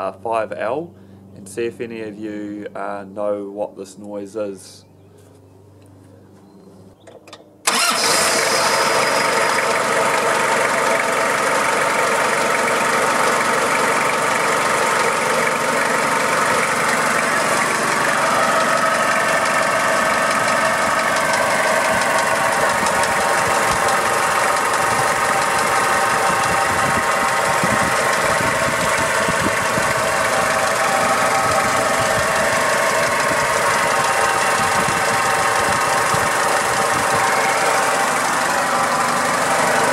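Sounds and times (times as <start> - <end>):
diesel engine idling: 7.7 - 39.9.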